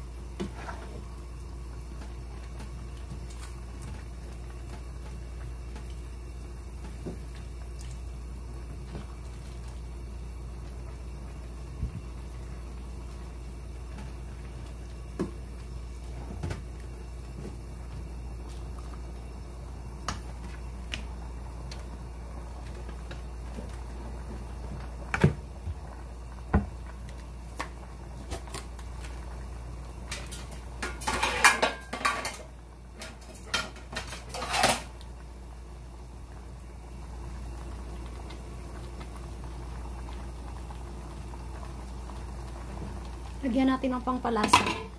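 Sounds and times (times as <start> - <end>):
steady low hum: 0.0 - 44.9
cookware and utensils clinking: 30.1 - 34.9, 44.4 - 44.9
cookware clattering: 30.8 - 32.4, 33.2 - 34.9, 44.4 - 44.9.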